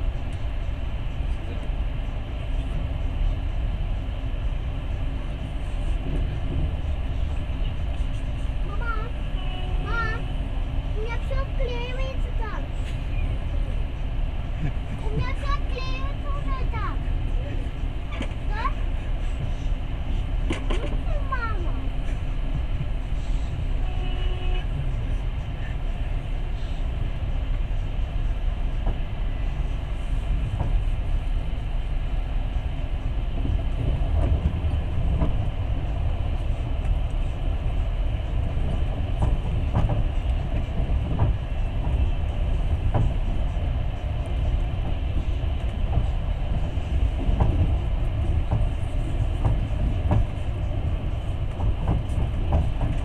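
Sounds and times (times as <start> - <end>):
train carriage rumble: 0.0 - 53.0
wheels clicking over rail joints: 20.4 - 23.0, 32.6 - 53.0.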